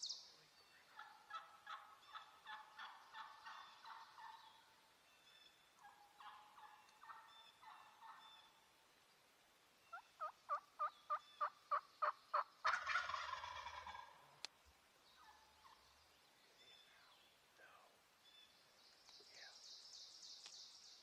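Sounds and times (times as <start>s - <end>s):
turkey gobble: 0.9s - 4.7s, 5.8s - 8.6s, 9.9s - 14.3s
wild turkey yelping: 0.9s - 4.8s, 5.8s - 8.7s, 9.9s - 14.4s, 15.2s - 15.8s.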